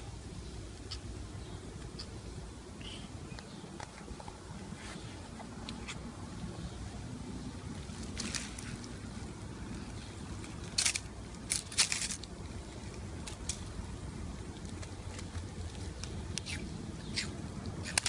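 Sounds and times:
steady low hum: 0.0s - 18.0s
rustling on dry leaves: 7.5s - 13.8s.

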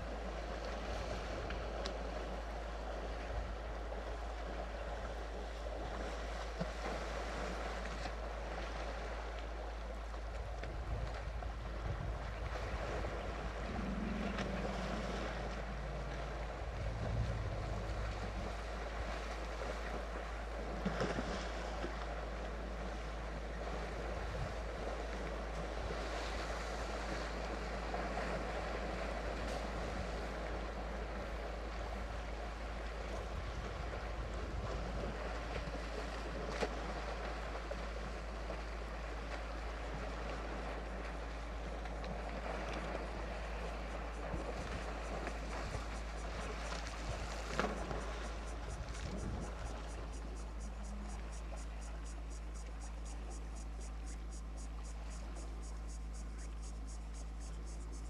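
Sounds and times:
wind noise on microphone: 10.4s - 19.8s, 33.1s - 35.3s, 44.0s - 51.0s
short low hums: 13.0s - 19.6s.

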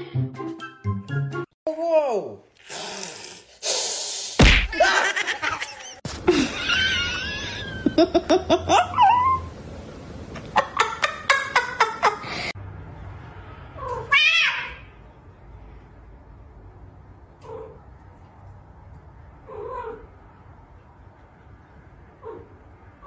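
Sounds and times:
people laughing: 4.7s - 8.8s
pet wavering cries: 13.8s - 14.8s
cat meow: 13.8s - 14.9s.

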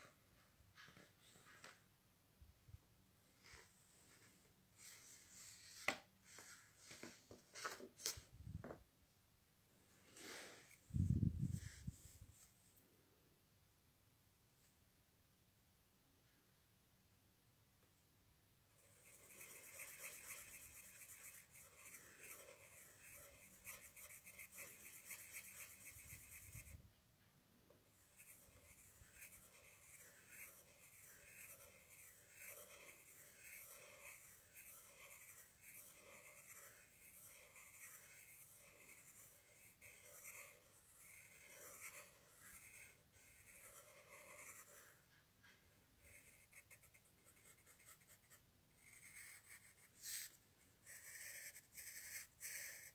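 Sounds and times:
pen scratching on paper: 18.8s - 26.8s, 28.0s - 52.9s.

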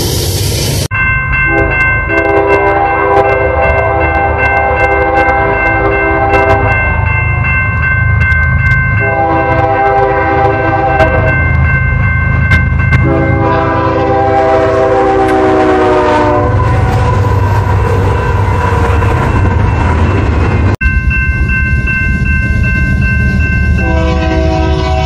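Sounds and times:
diesel locomotive rumble: 0.0s - 25.0s
crossing warning bell ringing: 0.6s - 25.0s
locomotive air horn blasts: 1.5s - 6.8s, 9.0s - 11.4s, 13.0s - 17.4s, 23.8s - 25.0s.

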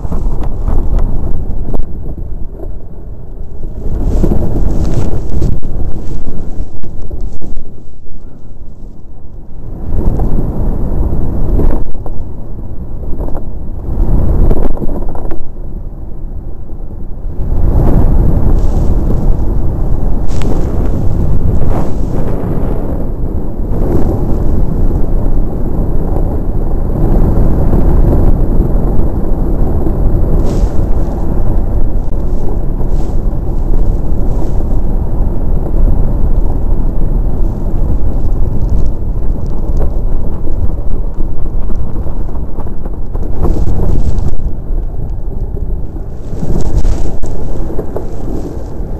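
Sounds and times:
wind rumble on microphone: 0.0s - 48.9s.

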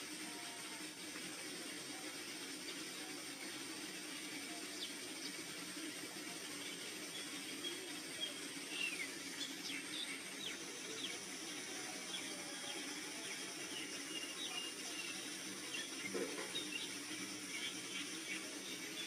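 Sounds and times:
outdoor ambient hiss: 0.0s - 19.0s
small birds chirping: 6.5s - 19.0s.

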